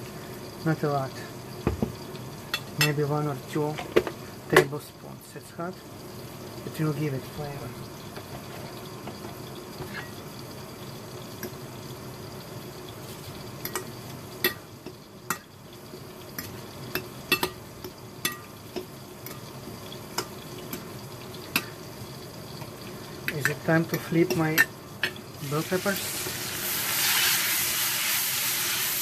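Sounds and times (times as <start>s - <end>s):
steaming hiss in pan: 0.0s - 29.0s.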